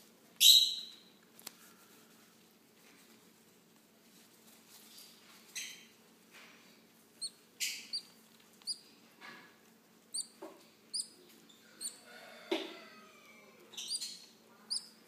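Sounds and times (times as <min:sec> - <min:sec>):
baby parrots chirping: 0:07.2 - 0:08.9, 0:10.1 - 0:12.2, 0:12.8 - 0:15.0.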